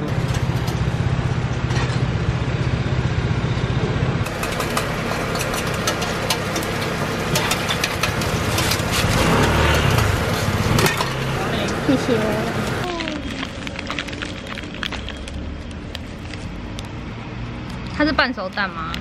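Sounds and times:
tongs and spatula scraping griddle: 4.3 - 12.3.

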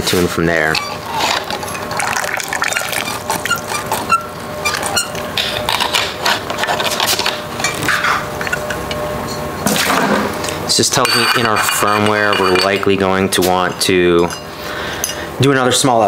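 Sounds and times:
water running into metal funnel: 1.4 - 3.9.

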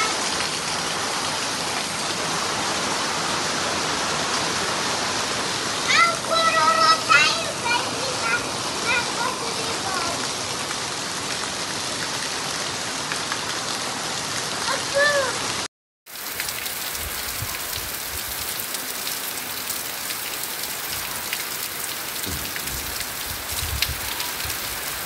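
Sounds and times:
heavy rain hissing: 0.0 - 25.0
rain drop ticks: 16.2 - 25.0.

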